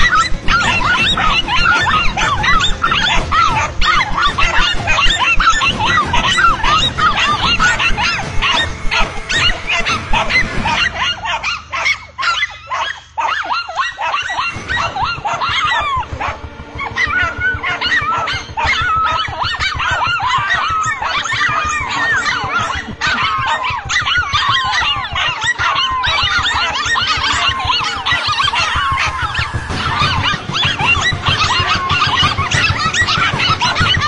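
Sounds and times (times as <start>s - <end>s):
dogs barking and yelping: 0.0s - 34.0s.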